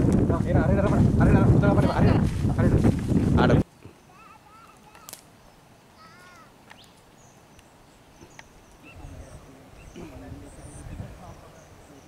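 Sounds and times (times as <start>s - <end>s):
birds whistling and chirping: 3.9s - 12.0s.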